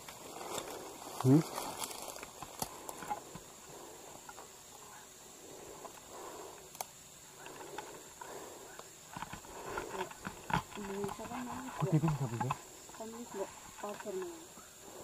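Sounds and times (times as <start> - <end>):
small clicks and ticks: 0.0 - 3.5, 5.7 - 14.6
soft rustling: 0.0 - 6.6.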